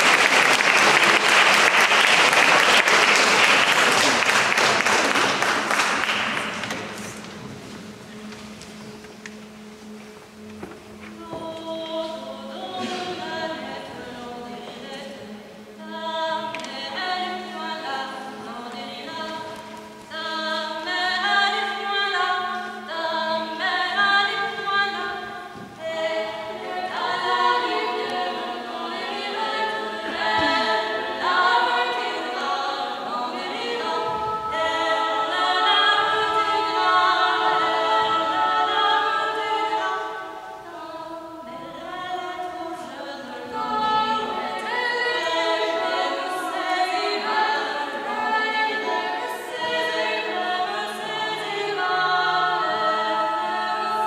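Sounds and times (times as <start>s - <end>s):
women singing a cappella harmony: 11.1s - 54.0s.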